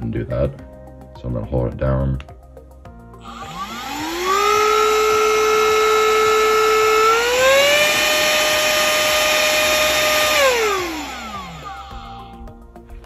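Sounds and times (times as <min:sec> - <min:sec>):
handheld vacuum motor whine: 0:03.2 - 0:12.6.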